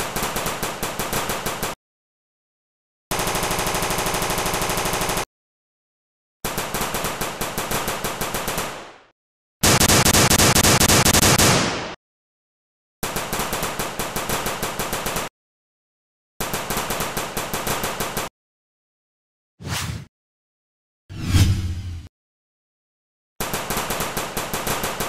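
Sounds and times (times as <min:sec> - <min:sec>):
automatic gunfire bursts: 0:00.0 - 0:01.8, 0:03.1 - 0:05.3, 0:06.5 - 0:08.9, 0:09.6 - 0:12.0, 0:23.4 - 0:25.0.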